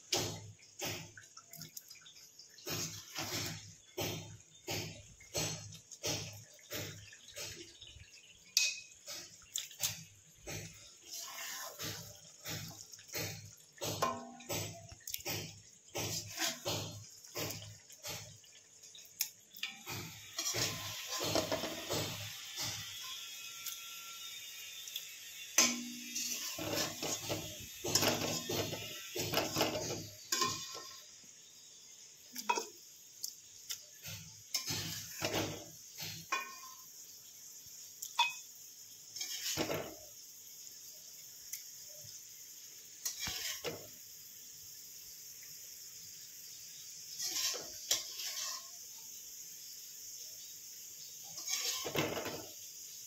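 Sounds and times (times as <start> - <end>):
metal utensils clinking on a pot: 2.6 - 18.4, 19.6 - 23.2, 25.6 - 31.1, 34.0 - 36.9, 38.1 - 38.5, 39.2 - 40.1, 43.0 - 43.9, 47.2 - 48.8, 51.2 - 52.6
faint steady hiss: 8.2 - 53.0.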